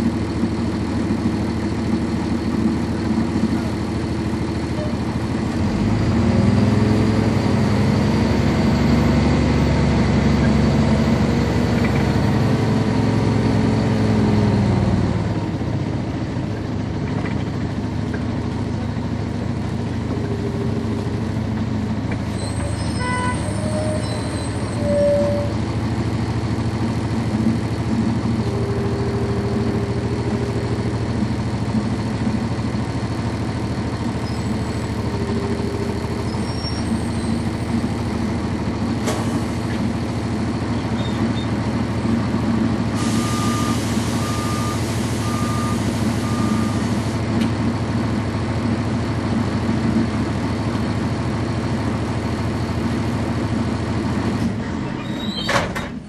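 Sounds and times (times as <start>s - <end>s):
diesel bus engine idling: 0.0s - 56.0s
short beeps: 43.2s - 46.8s.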